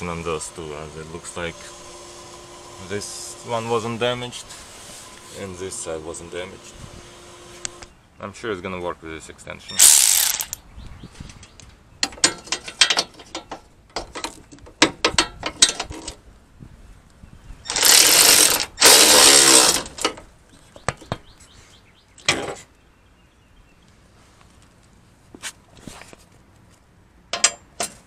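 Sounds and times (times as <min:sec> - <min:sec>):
electric ratchet driving bolt: 0:09.8 - 0:10.6, 0:17.7 - 0:20.2
sharp clicks and knocks: 0:09.8 - 0:10.6, 0:11.3 - 0:16.2, 0:27.3 - 0:28.0.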